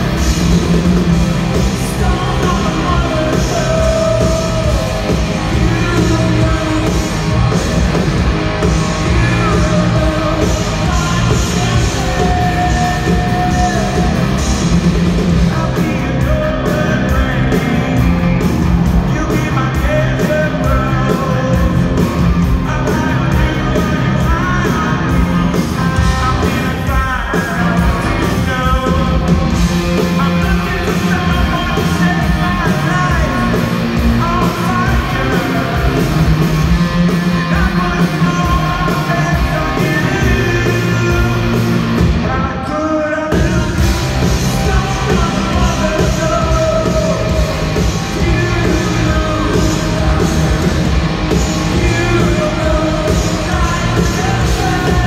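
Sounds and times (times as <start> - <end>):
drums: 0.0 - 55.0
electric guitars: 0.0 - 55.0
person singing lead vocal: 0.0 - 55.0.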